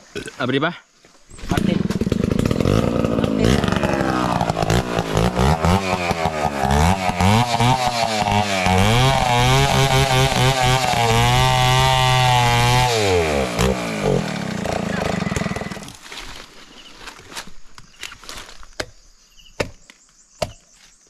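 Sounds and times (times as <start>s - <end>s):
small petrol engine revving: 1.4s - 16.0s.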